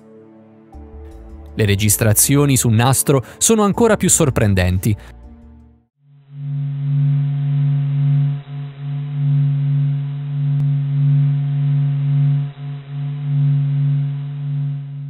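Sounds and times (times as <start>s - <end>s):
steady low hum: 6.1s - 15.0s.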